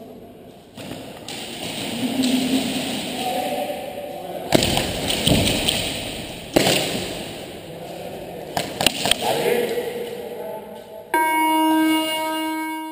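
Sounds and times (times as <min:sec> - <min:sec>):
sharp thuds with echo: 0:04.5 - 0:07.6.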